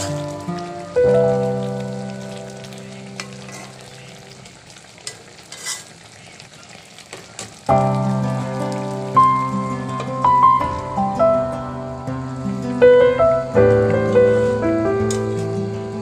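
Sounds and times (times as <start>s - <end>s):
background music chords: 0.0s - 3.3s, 7.7s - 16.0s
curry simmering and sizzling: 0.0s - 16.0s.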